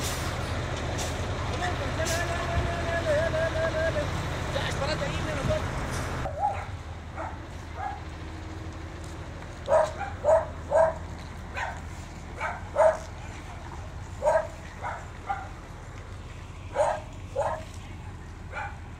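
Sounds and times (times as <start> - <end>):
dog barking: 6.3 - 8.0, 9.7 - 11.8, 12.4 - 13.1, 14.2 - 15.6, 16.7 - 17.7, 18.5 - 18.9.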